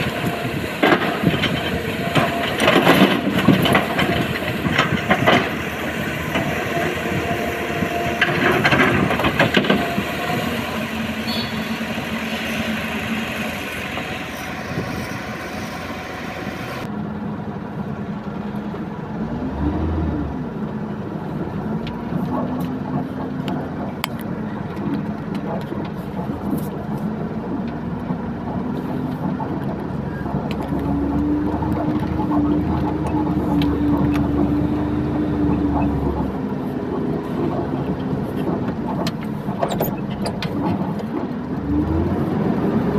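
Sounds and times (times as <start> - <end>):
excavator working: 0.0 - 42.9
truck diesel engine pulling uphill: 0.0 - 42.9.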